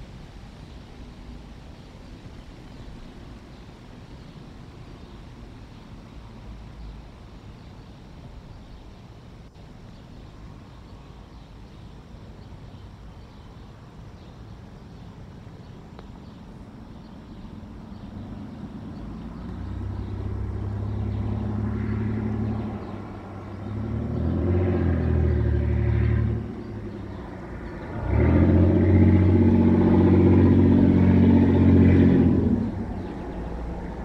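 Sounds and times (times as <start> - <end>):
vehicle engine passing by: 17.2 - 34.0.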